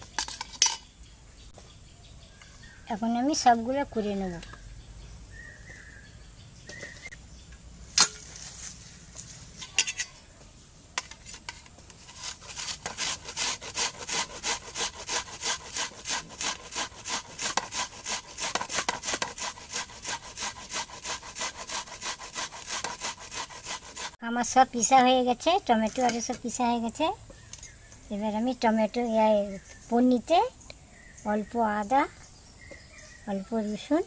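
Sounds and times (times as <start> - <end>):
onion grated on metal grater: 12.0 - 24.2.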